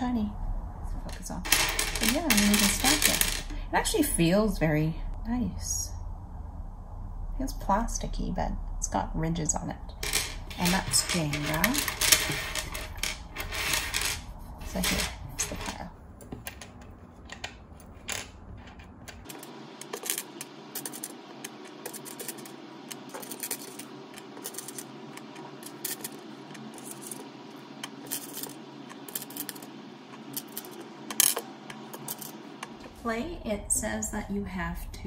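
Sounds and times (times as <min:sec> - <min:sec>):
plastic blocks clicking on table: 0:01.5 - 0:03.5, 0:10.0 - 0:14.2.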